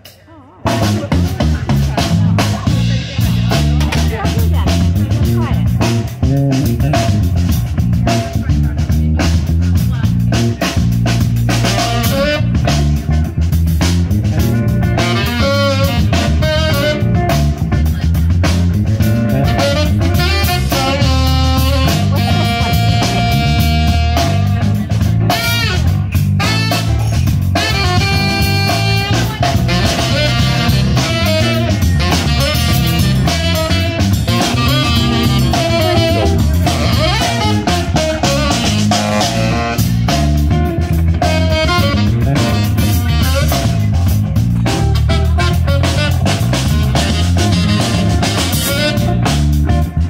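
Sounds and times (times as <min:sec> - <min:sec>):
drum kit groove: 0:00.0 - 0:50.0
jazz-funk band playing: 0:00.0 - 0:50.0
electric bass line: 0:00.6 - 0:50.0
saxophone melody: 0:11.5 - 0:13.0, 0:14.4 - 0:17.7, 0:19.0 - 0:49.9.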